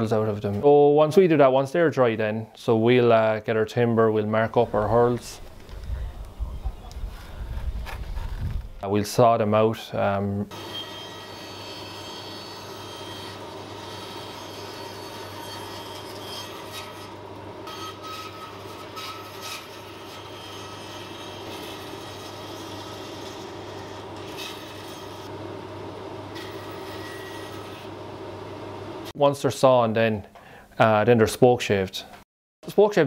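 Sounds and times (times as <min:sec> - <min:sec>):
saw rasping through wood: 0:10.5 - 0:25.3, 0:26.3 - 0:27.9
bandsaw humming: 0:10.5 - 0:29.1.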